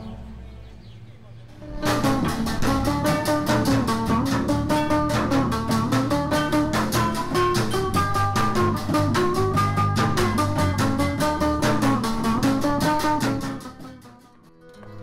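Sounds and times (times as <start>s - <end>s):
band playing upbeat music: 1.6s - 13.6s.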